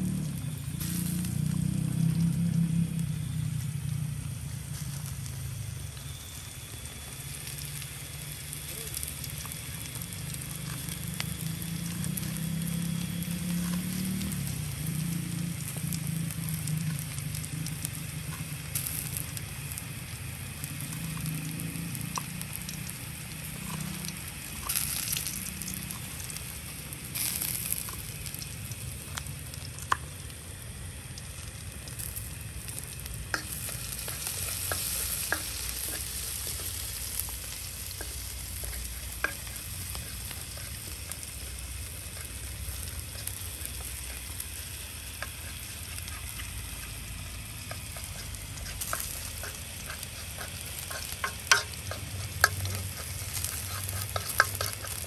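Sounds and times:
low hum: 0.0 - 55.0
shallots sizzling in oil: 0.0 - 55.0
spoon stirring in wok: 32.0 - 55.0.

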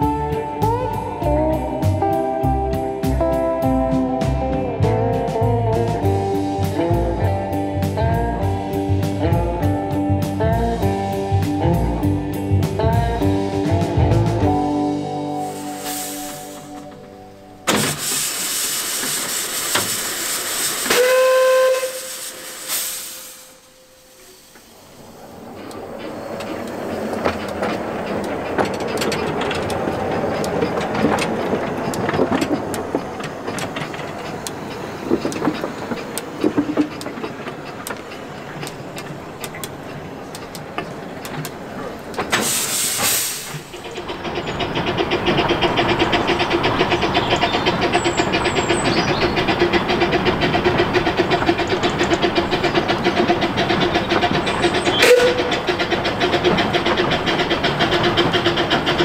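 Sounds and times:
train running rhythm: 0.0 - 59.0
steam locomotive hissing: 13.7 - 59.0
loud steam blast: 15.2 - 17.0, 17.6 - 27.7, 42.2 - 59.0.

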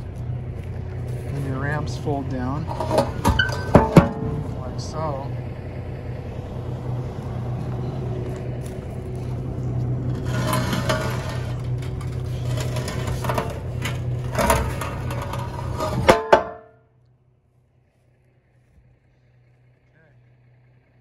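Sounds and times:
truck engine idling: 0.0 - 21.0
clanks and knocks on trailer deck: 2.6 - 4.6, 10.4 - 16.8.

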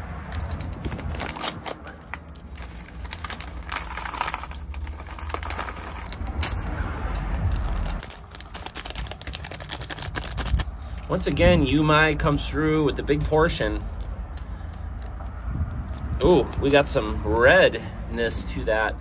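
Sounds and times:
road traffic rumble: 0.0 - 19.0
plastic bag crinkling: 0.4 - 10.8.

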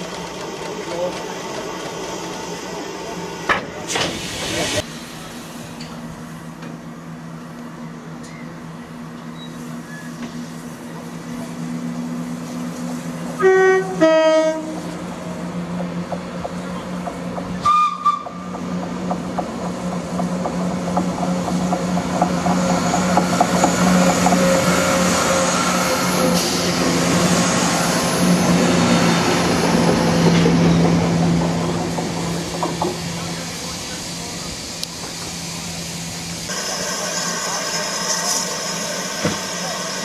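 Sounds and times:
diesel train engine drone: 0.0 - 40.0
two-tone train horn: 13.4 - 14.8, 17.6 - 18.4
train wheels clicking over rail joints: 14.6 - 35.4.

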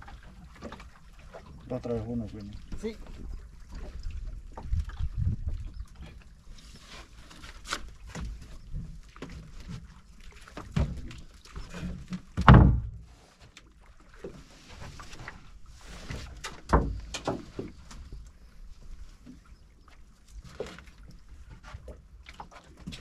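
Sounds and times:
knocks and thumps in a boat: 0.0 - 23.0
water noise: 0.0 - 23.0
wind: 0.0 - 23.0.

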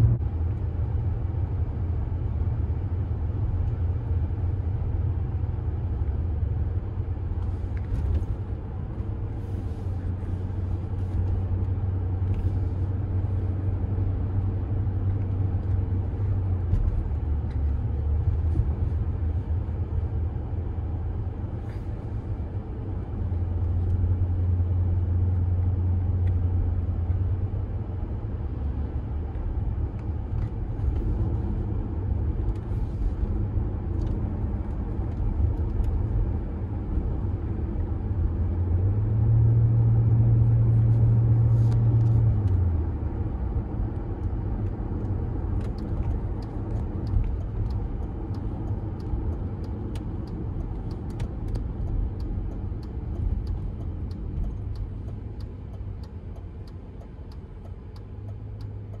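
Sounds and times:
road and tyre rumble: 0.0 - 59.0
car engine running: 40.4 - 59.0.

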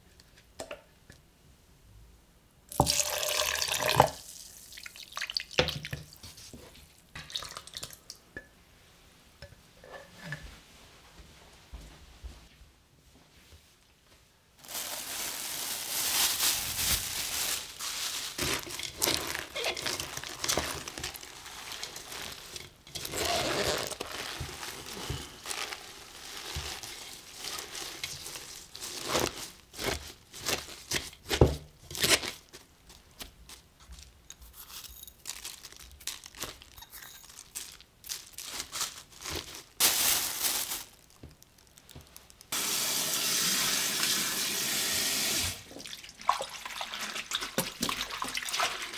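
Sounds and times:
hands rustling leaves in bowl: 14.6 - 31.4, 32.0 - 42.8
plastic wrap crinkling: 14.6 - 42.9.

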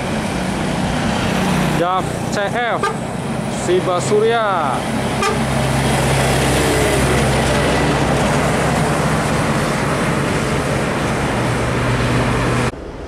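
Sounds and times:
truck diesel engine: 0.0 - 13.0
tyre and road noise: 0.0 - 13.0.

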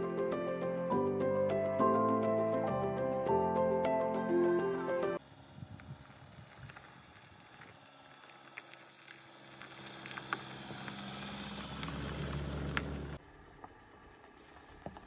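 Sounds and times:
car engine hum: 5.2 - 15.0
tyres crunching on gravel: 5.7 - 15.0.

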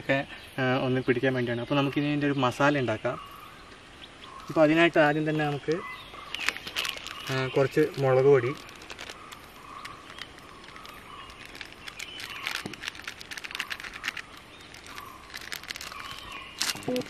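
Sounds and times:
plastic sachet crinkling: 5.6 - 17.0.

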